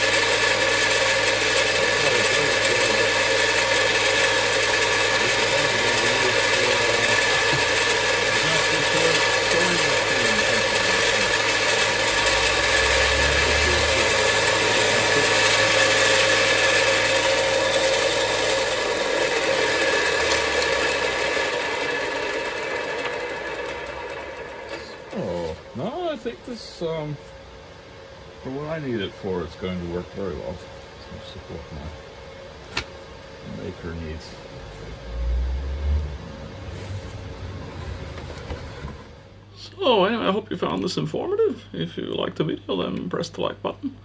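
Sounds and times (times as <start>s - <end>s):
bench grinder motor whining: 0.0s - 30.6s, 32.5s - 40.8s.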